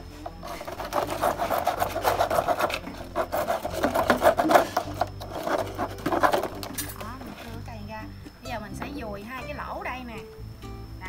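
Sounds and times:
hacksaw sawing plastic pipe: 0:00.4 - 0:06.7.

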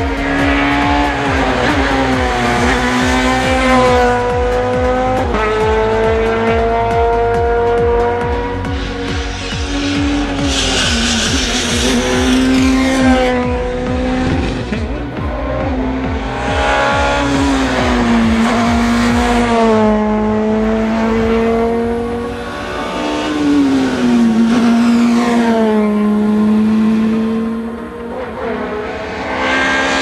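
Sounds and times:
rally car engine revving: 0:00.0 - 0:30.0.

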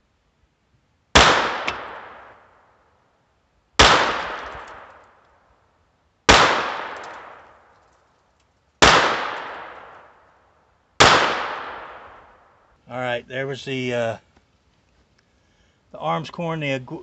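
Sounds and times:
pistol shots: 0:01.1 - 0:02.4, 0:03.8 - 0:05.1, 0:06.3 - 0:07.7, 0:08.8 - 0:10.1, 0:11.0 - 0:12.4.

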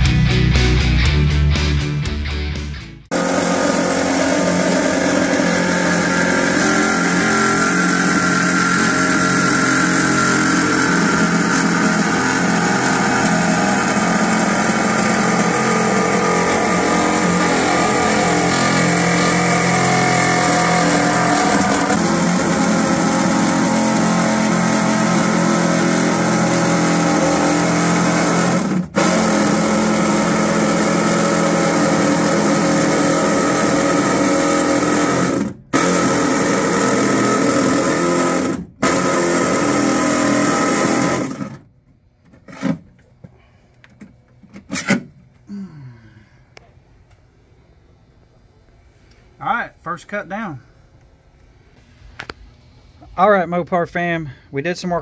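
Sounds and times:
reciprocating saw cutting sheet metal: 0:03.1 - 0:41.6.

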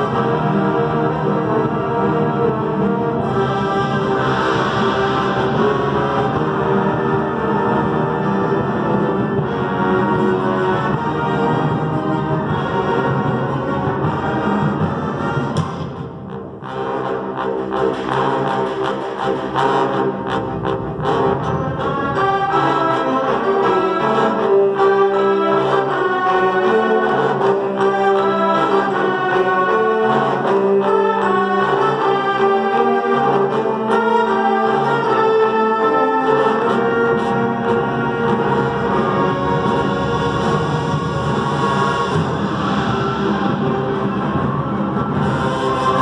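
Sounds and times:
wind orchestra playing: 0:00.0 - 0:46.0.

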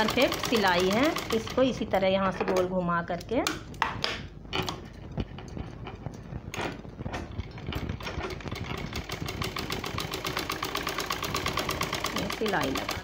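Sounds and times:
sewing machine clatter: 0:00.0 - 0:01.8, 0:05.4 - 0:13.0.

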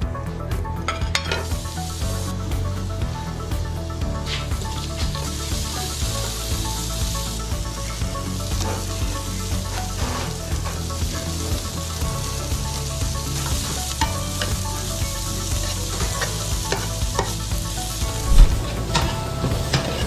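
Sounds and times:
food sizzling in oil: 0:01.0 - 0:03.0, 0:04.2 - 0:20.0.

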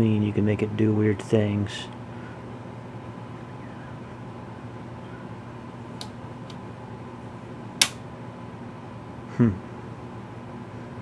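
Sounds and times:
steady low hum: 0:00.0 - 0:11.0
switch clicks: 0:07.8 - 0:08.0.

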